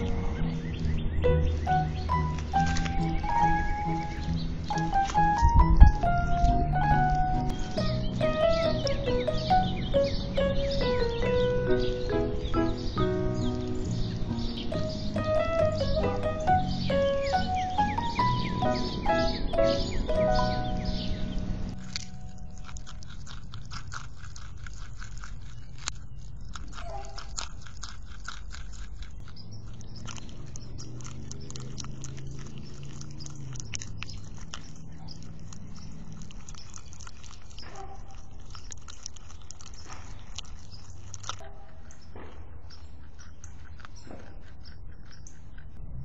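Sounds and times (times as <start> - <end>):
background music: 0.0 - 22.3
animal crunching carrot: 0.0 - 46.0.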